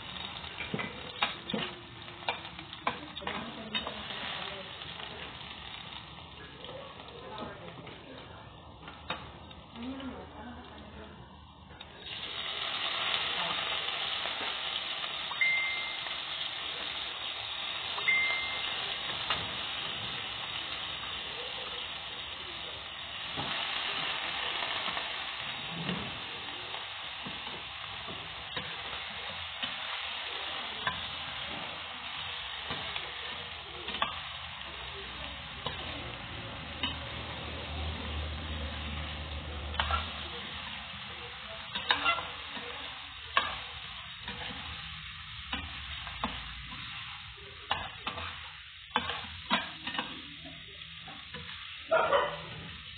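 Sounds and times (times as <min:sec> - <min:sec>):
chicken sizzling in hot oil: 0:00.0 - 0:52.9
metal utensil scraping a pan: 0:39.7 - 0:40.2, 0:41.6 - 0:44.8, 0:47.7 - 0:50.3.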